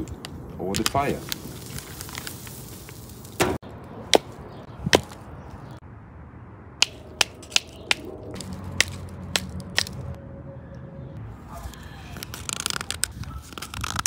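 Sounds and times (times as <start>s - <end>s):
sharp snaps: 6.8s - 10.1s.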